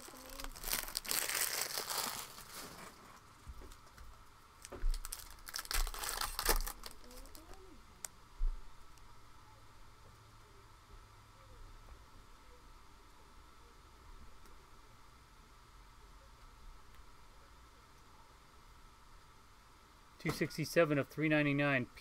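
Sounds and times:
foil wrapper crinkling and tearing: 0.0 - 3.0, 4.6 - 7.6.

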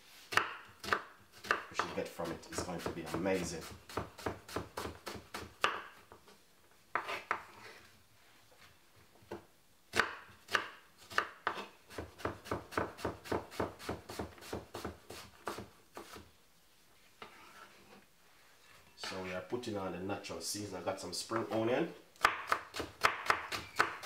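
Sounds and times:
knife chopping on cutting board: 0.3 - 5.9, 6.9 - 7.5, 9.9 - 16.2, 22.2 - 24.0.

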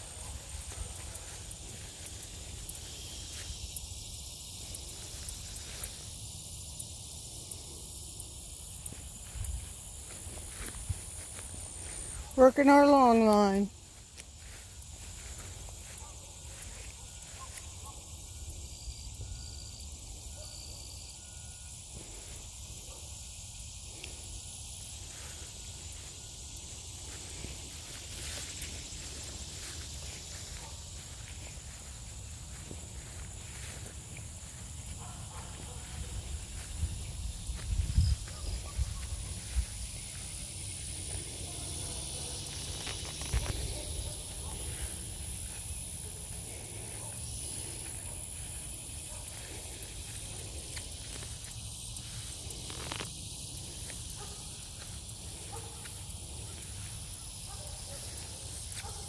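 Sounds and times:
insects buzzing: 0.0 - 59.0.

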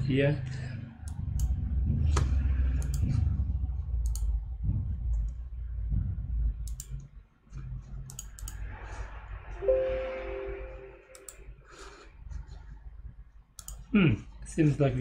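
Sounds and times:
computer mouse clicks: 1.0 - 1.6, 2.2 - 3.2, 4.0 - 4.4, 6.6 - 8.8, 11.1 - 11.4, 13.5 - 13.9
low rumble: 1.1 - 6.7.

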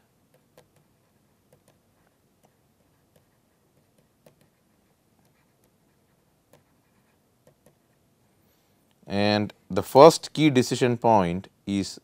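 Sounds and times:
stylus tapping on pen tablet: 0.3 - 6.8, 7.4 - 7.9.

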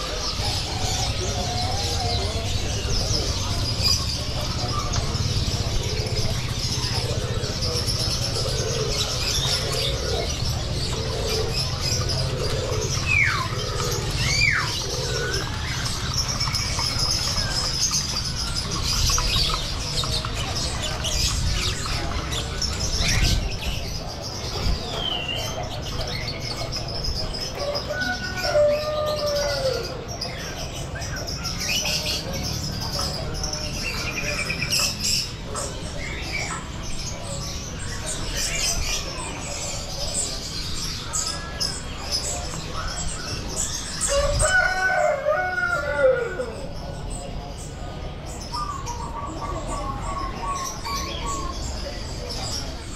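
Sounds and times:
birds chirping and whistling: 0.0 - 52.9.

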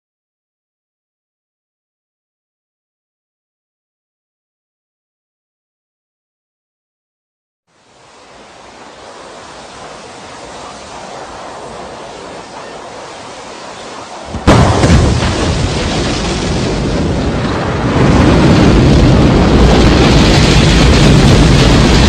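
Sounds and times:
steady hiss: 7.7 - 16.2
rocket engine roar: 7.7 - 22.0.

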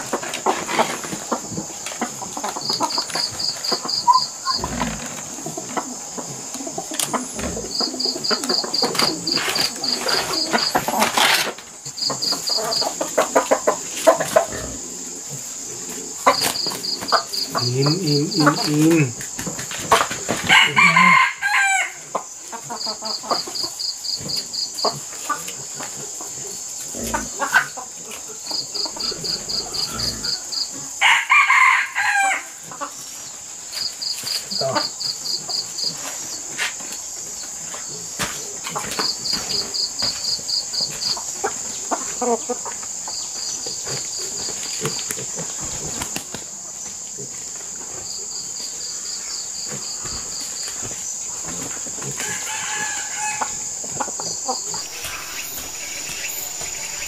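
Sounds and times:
rapid insect chirping: 0.0 - 57.0
rooster crowing: 20.4 - 22.0, 29.8 - 32.6, 52.2 - 53.8
high-pitched insect drone: 52.3 - 57.0.

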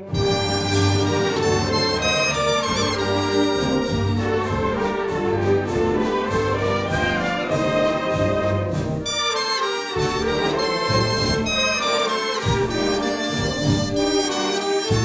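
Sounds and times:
wind band playing: 0.0 - 15.0.

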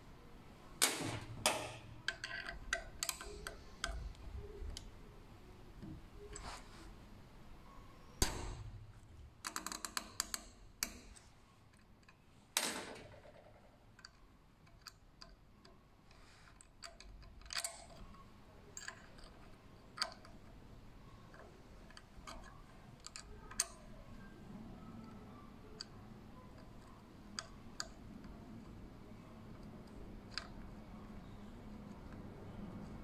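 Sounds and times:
hex key clicks and taps: 0.8 - 5.0.

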